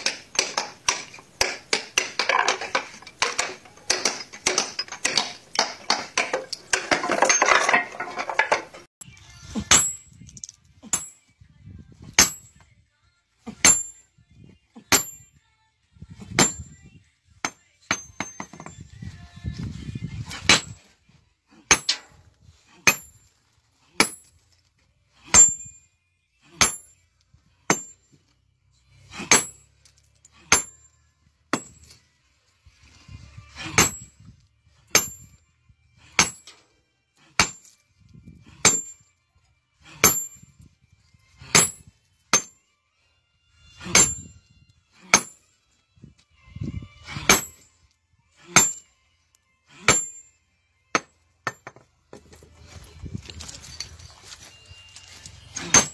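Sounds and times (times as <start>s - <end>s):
sledgehammer striking stone: 0.0s - 8.8s, 9.6s - 10.2s, 10.9s - 11.2s, 12.1s - 12.6s, 13.5s - 14.0s, 14.8s - 15.3s, 16.2s - 16.8s, 17.4s - 18.8s, 20.3s - 20.8s, 21.7s - 22.1s, 22.8s - 23.2s, 24.0s - 24.3s, 25.3s - 25.8s, 26.5s - 27.0s, 27.7s - 28.1s, 29.0s - 29.7s, 30.4s - 30.9s, 31.5s - 32.0s, 33.6s - 34.1s, 34.9s - 35.4s, 36.0s - 36.6s, 37.3s - 37.8s, 38.4s - 39.0s, 39.9s - 40.5s, 41.4s - 42.6s, 43.8s - 44.3s, 45.0s - 45.4s, 47.1s - 47.7s, 48.5s - 48.9s, 49.8s - 50.3s, 50.9s - 51.8s, 55.6s - 55.9s.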